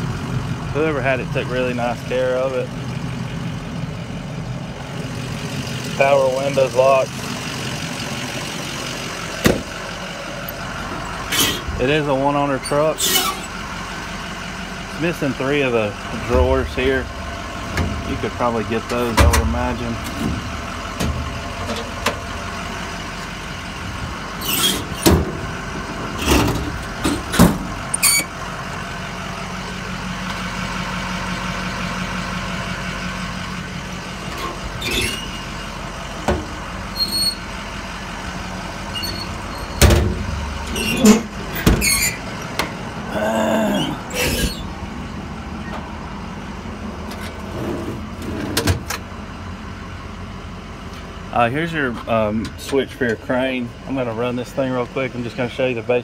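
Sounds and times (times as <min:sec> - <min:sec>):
diesel engine idling: 0:00.0 - 0:56.0
short metal squeal: 0:11.3 - 0:11.7, 0:12.6 - 0:13.5, 0:24.4 - 0:25.1, 0:28.0 - 0:28.3, 0:34.8 - 0:35.5, 0:36.9 - 0:37.5, 0:38.9 - 0:39.9, 0:40.7 - 0:42.3, 0:43.8 - 0:44.7
metal drawers and doors clacking: 0:18.9 - 0:20.4, 0:39.6 - 0:42.2.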